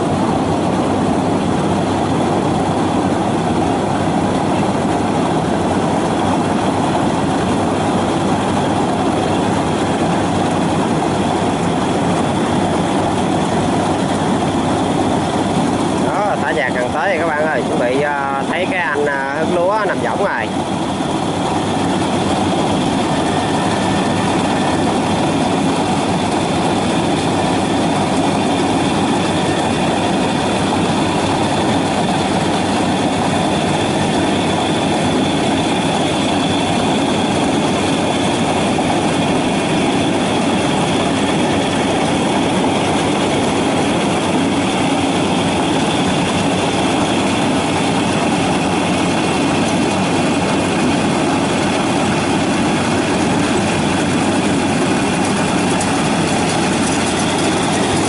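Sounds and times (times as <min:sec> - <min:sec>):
combine harvester engine droning: 0:00.0 - 0:58.0
faint high whine: 0:15.7 - 0:33.2.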